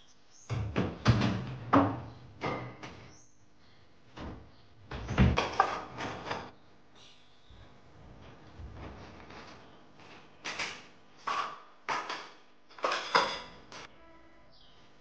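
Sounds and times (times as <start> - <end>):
things clattering on shelf: 4.9 - 6.5, 8.7 - 13.9.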